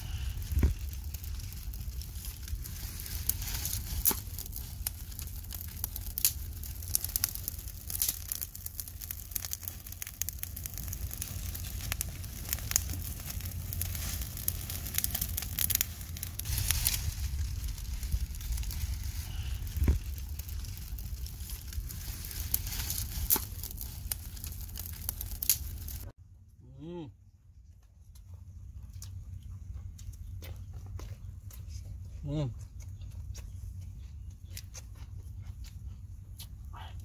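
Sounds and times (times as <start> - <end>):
aluminium foil crinkling: 0.0 - 26.0
embers crackling: 0.0 - 26.1
low steady rumble: 0.0 - 37.0.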